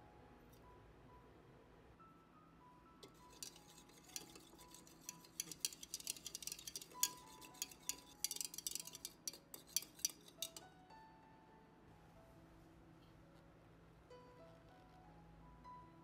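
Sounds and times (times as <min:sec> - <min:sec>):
faint background music: 0:00.0 - 0:16.0
metal whisk tapping plastic jug: 0:03.0 - 0:10.6.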